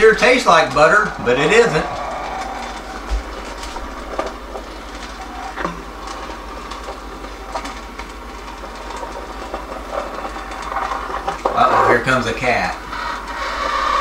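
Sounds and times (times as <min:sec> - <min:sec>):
low hum: 0:00.0 - 0:08.1
popcorn popper stirring kernels: 0:05.0 - 0:14.0.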